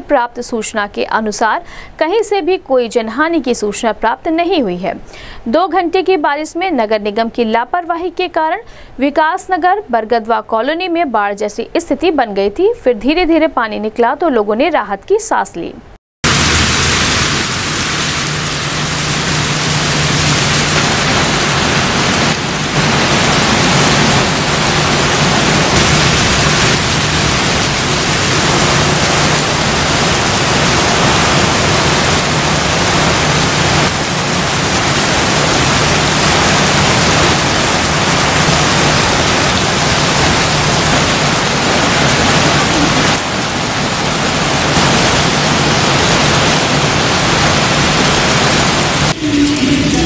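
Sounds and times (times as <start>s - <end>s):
heavy rain pouring: 16.2s - 50.0s.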